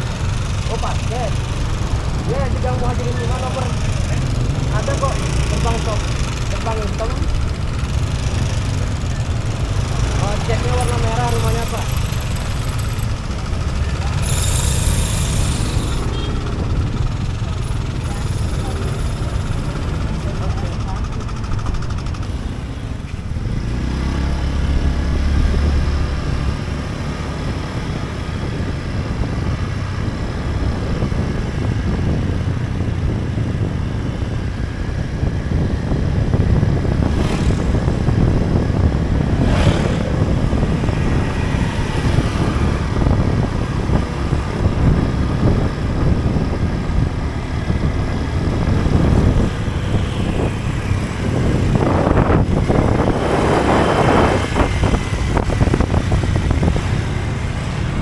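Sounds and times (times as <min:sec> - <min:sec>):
scooter engine running: 0:00.0 - 0:58.0
wind and road noise: 0:00.0 - 0:58.0
motorbikes whooshing past: 0:22.0 - 0:34.3, 0:35.2 - 0:58.0.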